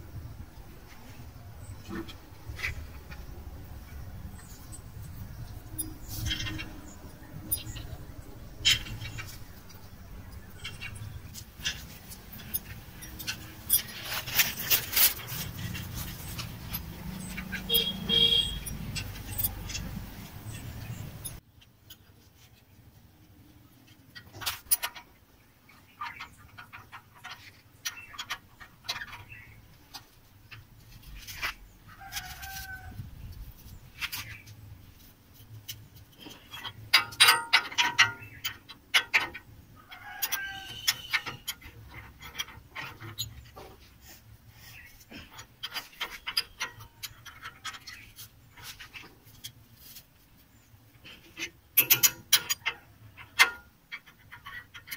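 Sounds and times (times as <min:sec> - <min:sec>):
metal clicks and clinks: 0:10.4 - 0:22.0, 0:35.7 - 0:43.4, 0:51.4 - 0:54.9.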